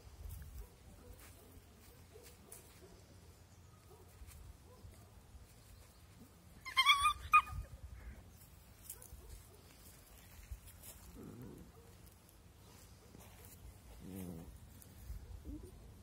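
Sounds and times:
puppy yelping: 6.6s - 7.8s.

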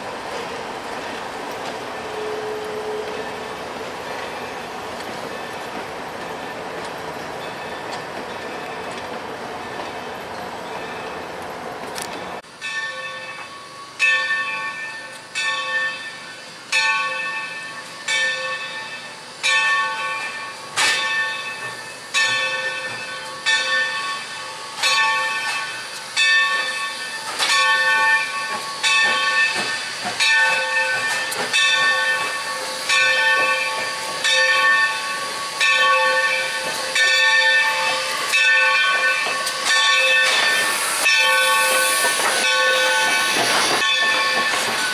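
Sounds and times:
locomotive bell ringing: 1.0s - 9.0s, 9.6s - 11.4s, 12.2s - 44.9s
light hiss of steam: 12.4s - 44.9s.

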